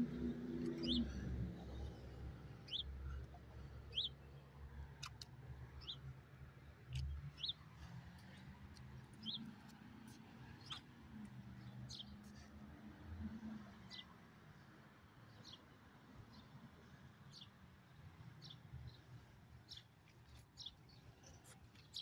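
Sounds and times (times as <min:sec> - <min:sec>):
small bird chirping: 0:10.5 - 0:11.0.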